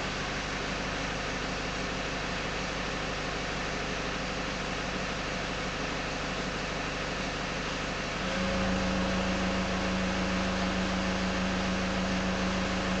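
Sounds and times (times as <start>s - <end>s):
diesel engine idling: 0.0s - 13.0s
steady hum: 8.2s - 13.0s.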